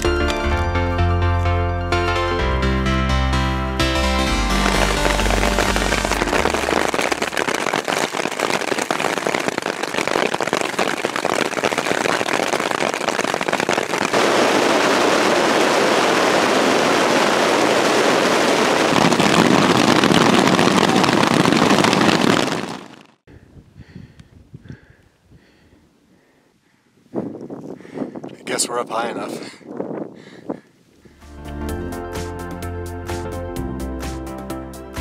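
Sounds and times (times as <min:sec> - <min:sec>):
hail pelting a tent: 0:04.4 - 0:23.2.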